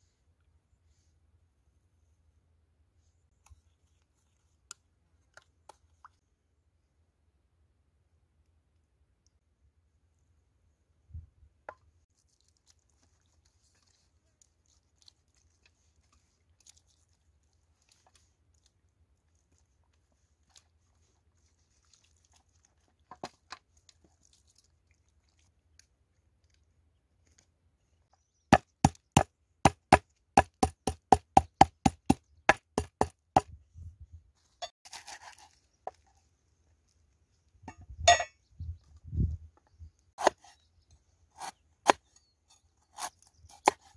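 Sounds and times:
cleaver chopping on wooden board: 28.5s - 33.5s, 40.2s - 40.5s.

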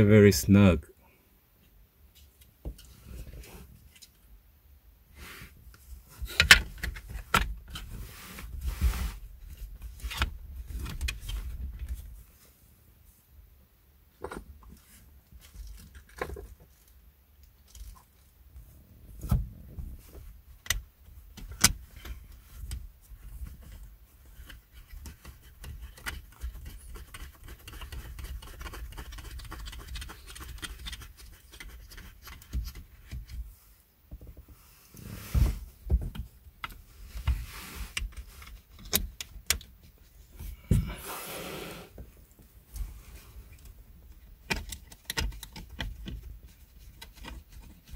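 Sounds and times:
plastic clicks and knocks: 44.4s - 46.3s.

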